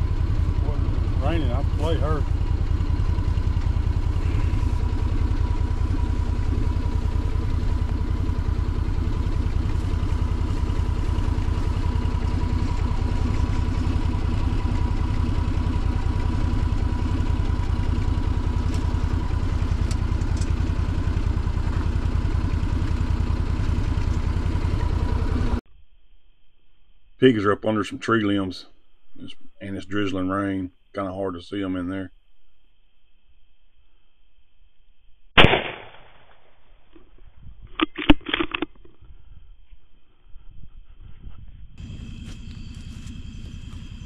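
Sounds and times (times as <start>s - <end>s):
utility vehicle engine idling: 0.0s - 25.6s, 40.1s - 44.0s.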